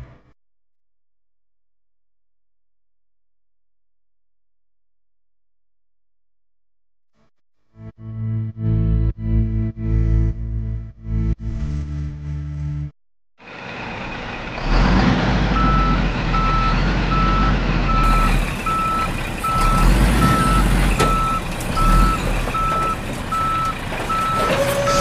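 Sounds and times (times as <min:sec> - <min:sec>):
low engine rumble: 0:13.4 - 0:25.0
reversing beeper: 0:15.5 - 0:25.0.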